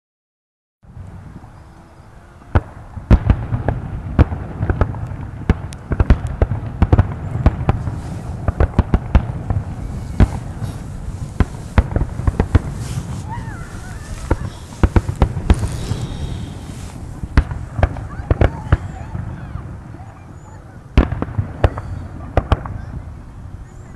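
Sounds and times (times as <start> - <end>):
firework shells bursting: 2.5 - 19.0.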